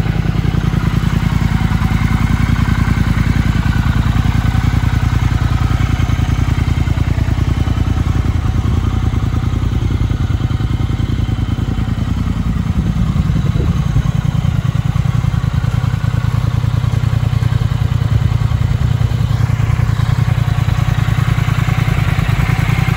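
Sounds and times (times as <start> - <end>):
motorcycle engine idling: 0.0 - 22.9.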